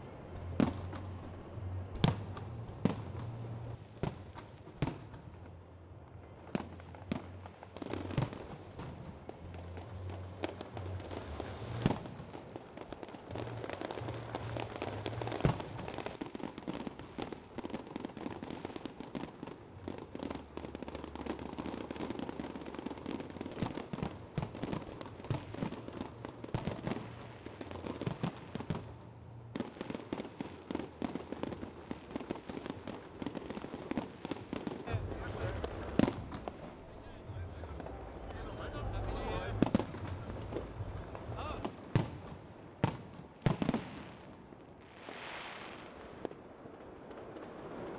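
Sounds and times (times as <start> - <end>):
fireworks bangs and crackling: 0.0 - 47.9
sharp loud firework reports: 34.8 - 44.2.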